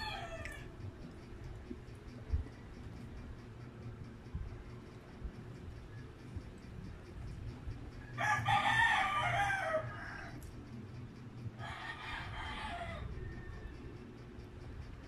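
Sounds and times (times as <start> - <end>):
rooster crowing: 0.0 - 0.8, 8.2 - 10.5, 11.6 - 14.0.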